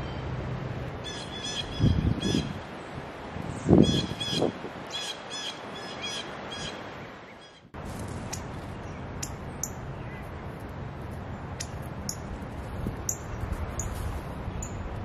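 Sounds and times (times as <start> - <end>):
blue jay calling: 1.0 - 2.6, 3.8 - 7.7.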